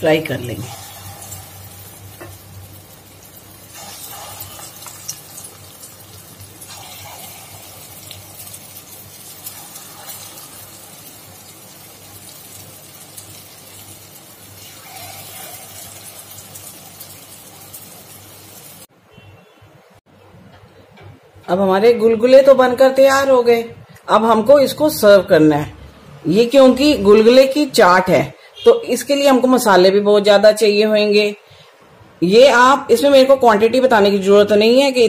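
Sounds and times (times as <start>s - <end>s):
fritters deep-frying in hot oil: 0.1s - 18.9s.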